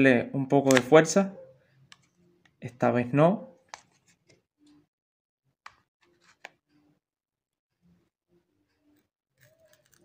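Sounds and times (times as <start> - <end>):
plastic card clicking under cover: 0.6 - 0.9.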